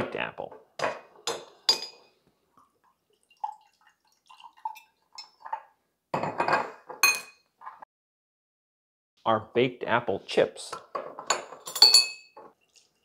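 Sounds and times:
liquid pouring and dripping: 2.5s - 5.7s, 12.6s - 13.0s
glass bottle clinks: 11.6s - 12.4s.

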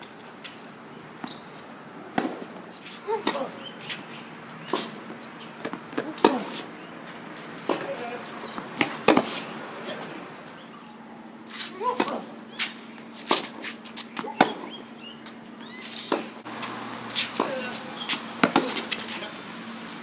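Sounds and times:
tennis ball bouncing on court: 2.1s - 2.5s, 3.1s - 3.8s, 4.6s - 6.8s, 7.4s - 9.5s, 14.2s - 14.8s, 16.0s - 19.4s
tennis ball struck by racket: 2.1s - 4.0s, 4.6s - 6.6s, 7.6s - 9.5s, 11.8s - 14.8s, 15.9s - 19.5s.

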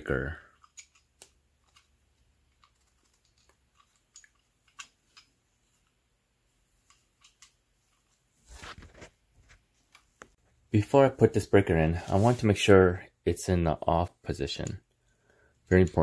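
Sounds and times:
faint clicks and rubs: 0.5s - 6.0s, 6.6s - 10.4s.

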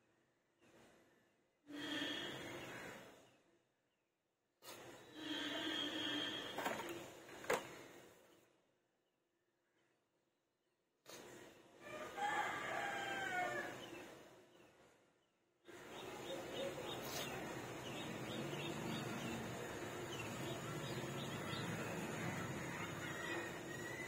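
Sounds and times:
birds calling and chirping: 15.7s - 24.0s
steady background noise: 15.7s - 24.0s.

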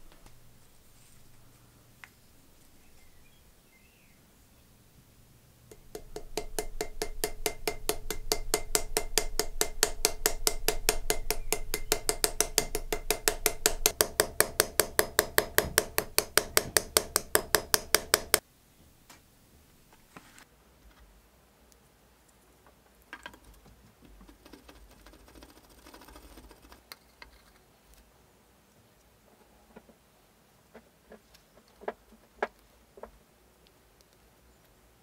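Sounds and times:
small hammer tapping metal pin: 5.7s - 18.4s.

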